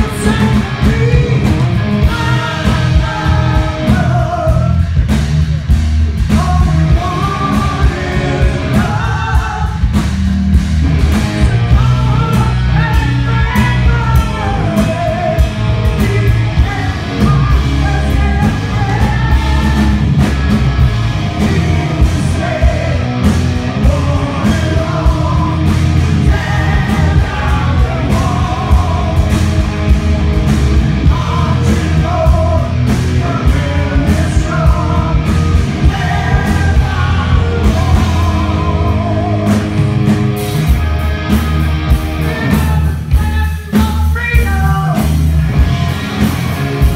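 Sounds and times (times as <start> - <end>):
male singer: 0.0 - 4.9, 6.3 - 10.0, 11.4 - 20.2, 21.3 - 29.5, 31.0 - 39.9, 42.3 - 45.2
bass guitar: 0.0 - 46.9
drums: 0.0 - 46.9
electric guitar: 0.0 - 46.9.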